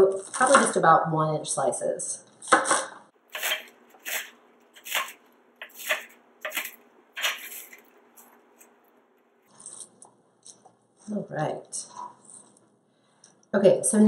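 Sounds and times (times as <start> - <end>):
knife chopping on cutting board: 3.3 - 8.7.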